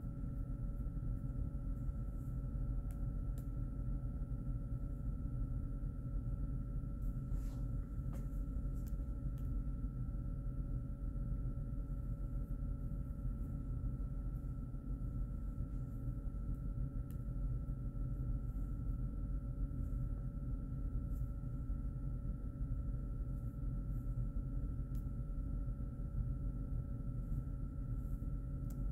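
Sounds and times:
low room hum: 0.0 - 28.9.

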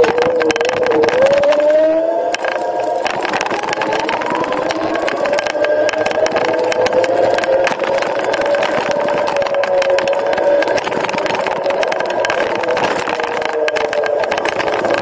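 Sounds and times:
electric scooter motor whining: 0.0 - 15.0
wind buffeting microphone: 0.0 - 15.0.

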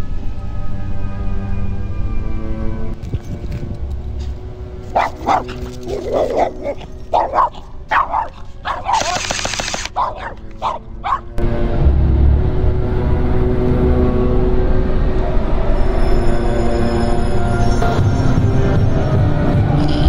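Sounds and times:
background music: 0.0 - 20.0
small dog yapping: 5.0 - 9.3, 9.9 - 11.3.

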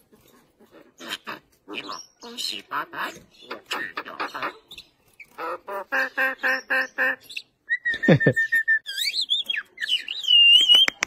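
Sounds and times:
mynas calling: 0.5 - 11.0.

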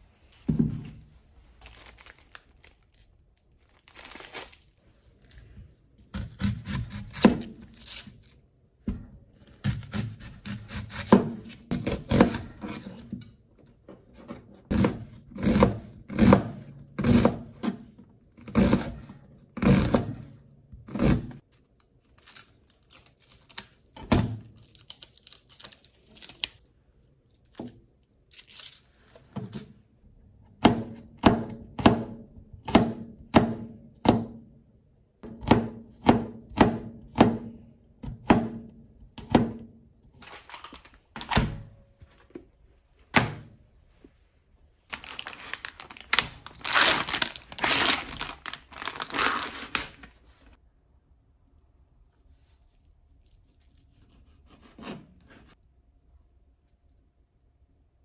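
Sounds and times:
onion papery tearing: 1.6 - 5.4, 6.2 - 8.4, 22.0 - 24.0, 24.6 - 26.7, 28.3 - 29.2, 44.9 - 50.2, 52.5 - 55.5
knife chopping on cutting board: 9.6 - 12.8, 35.2 - 38.6.

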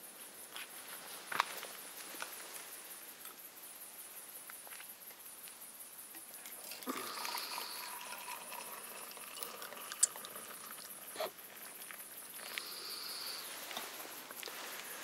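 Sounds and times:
camping stove hissing: 6.5 - 15.0.

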